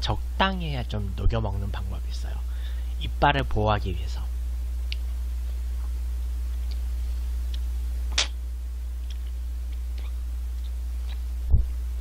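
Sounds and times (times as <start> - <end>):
low electrical hum: 0.0 - 12.0
wet mouth clicks: 9.0 - 11.3.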